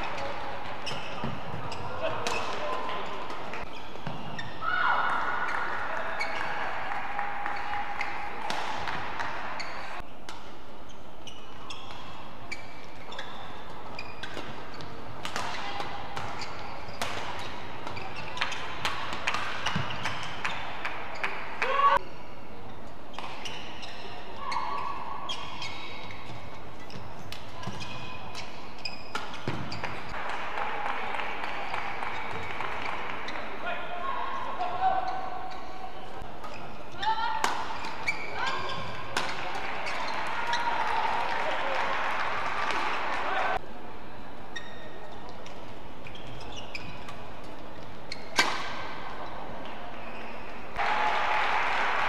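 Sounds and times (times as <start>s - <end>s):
shoes squeaking on court: 0.0s - 4.8s, 7.5s - 30.2s, 31.7s - 33.6s, 34.9s - 40.8s, 44.5s - 50.7s
crowd noise: 0.0s - 52.0s
crowd cheering and clapping: 4.9s - 10.0s, 30.1s - 33.4s, 39.6s - 43.6s, 50.8s - 52.0s.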